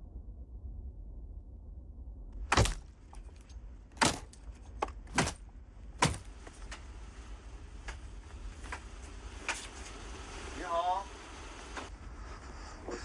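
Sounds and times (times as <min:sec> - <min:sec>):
background noise: 0:00.0 - 0:13.0
loud sharp knocks: 0:04.0 - 0:05.4, 0:06.0 - 0:06.6.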